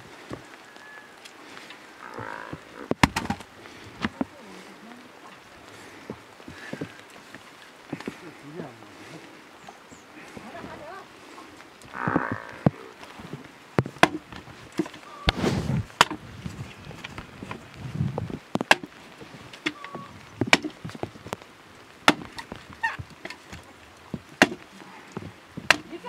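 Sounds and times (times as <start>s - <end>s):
wood clattering: 2.2s - 4.3s, 11.8s - 21.4s, 22.0s - 26.0s
blade chopping wood: 2.9s - 3.5s, 13.8s - 15.4s, 16.0s - 16.2s, 18.6s - 18.9s, 20.4s - 20.9s, 22.0s - 22.5s, 24.4s - 24.7s, 25.6s - 25.9s.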